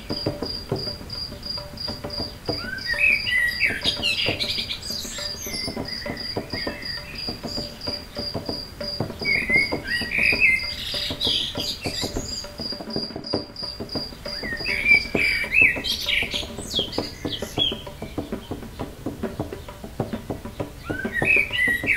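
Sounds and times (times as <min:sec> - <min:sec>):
birds chirping: 0:00.0 - 0:21.9
insect chirping: 0:00.0 - 0:21.9.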